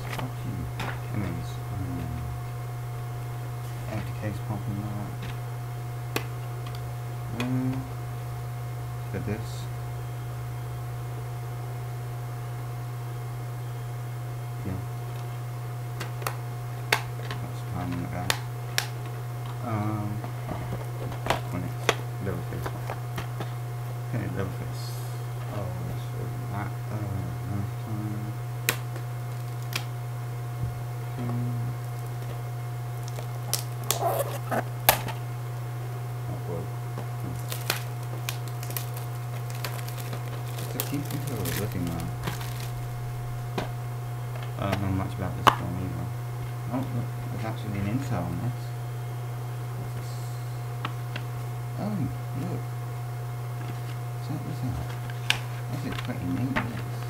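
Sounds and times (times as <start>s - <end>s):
low electrical hum: 0.0s - 57.0s
plastic case clicking and rattling: 37.3s - 42.7s.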